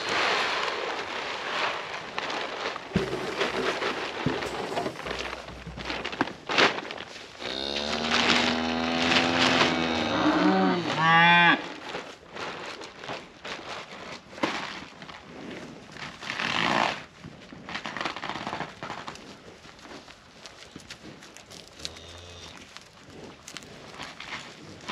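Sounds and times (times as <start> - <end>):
cow mooing: 7.4 - 11.6.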